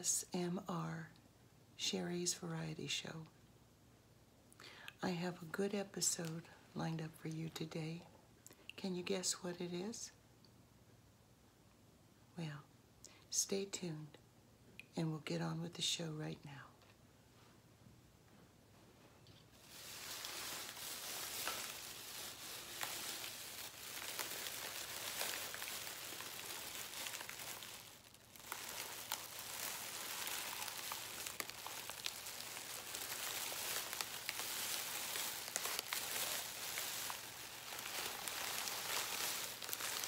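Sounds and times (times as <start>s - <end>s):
plastic bag crinkling: 19.5s - 40.0s.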